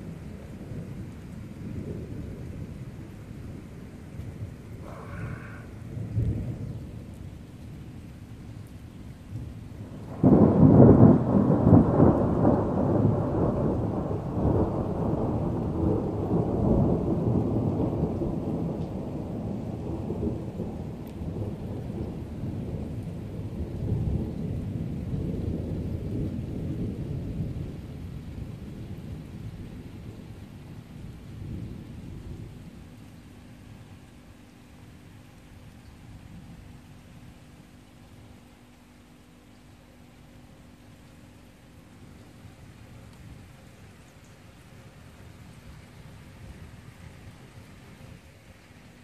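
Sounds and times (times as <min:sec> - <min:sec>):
thunder clap and rumble: 0:00.0 - 0:07.4, 0:09.3 - 0:33.1.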